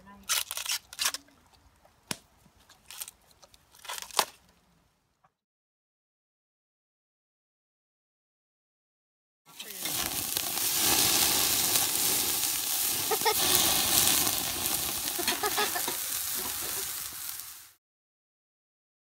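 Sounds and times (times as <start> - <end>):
food sizzling on a grill: 9.5 - 17.8.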